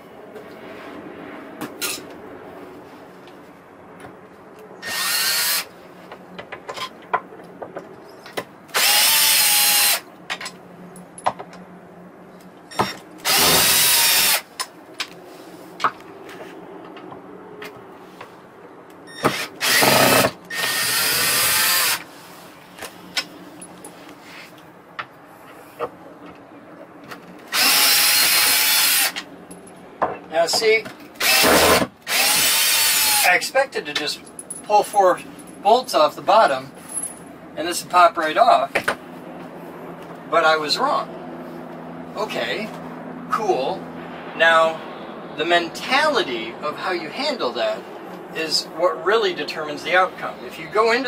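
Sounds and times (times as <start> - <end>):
power drill whine: 4.8 - 5.7, 8.7 - 10.0, 12.7 - 14.4, 19.1 - 22.0, 27.5 - 29.2, 31.2 - 33.3.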